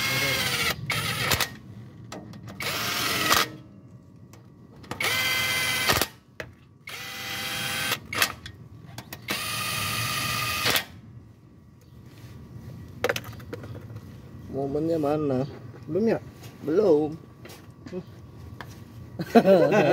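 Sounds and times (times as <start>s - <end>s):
impact wrench motor whine: 0.0s - 1.6s, 2.6s - 3.6s, 5.0s - 6.2s, 6.8s - 8.4s, 9.3s - 11.0s.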